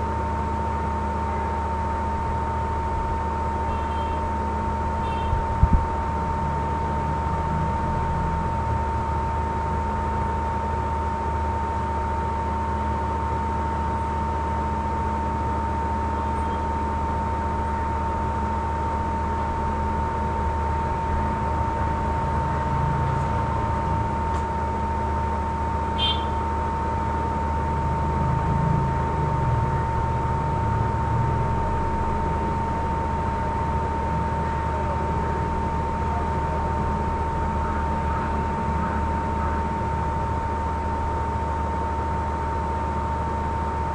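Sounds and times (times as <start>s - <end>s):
background hum and hiss: 0.0s - 43.9s
high-pitched whine: 15.5s - 25.1s.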